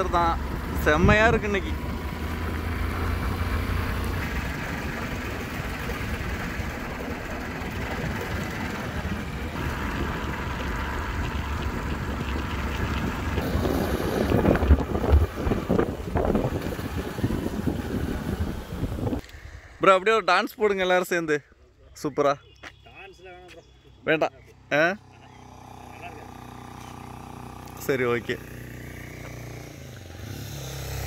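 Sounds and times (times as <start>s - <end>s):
motorcycle passing close: 0.0s - 19.2s, 24.7s - 31.0s
vehicle running on road: 0.0s - 19.3s, 23.5s - 31.0s
wind noise on microphone: 9.6s - 19.6s.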